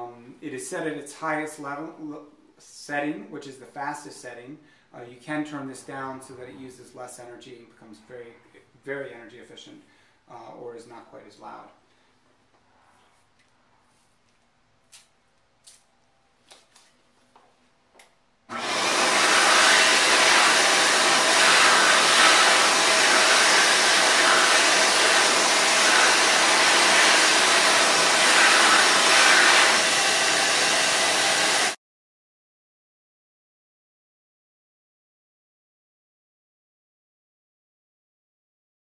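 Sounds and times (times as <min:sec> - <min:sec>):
hand dryer rushing air: 0:18.5 - 0:31.8.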